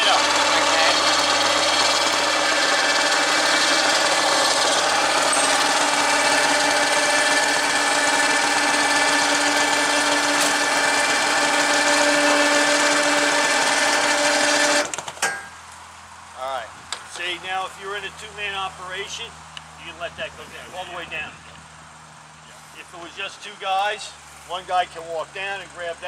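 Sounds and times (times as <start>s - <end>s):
powered winch running: 0.0s - 15.5s.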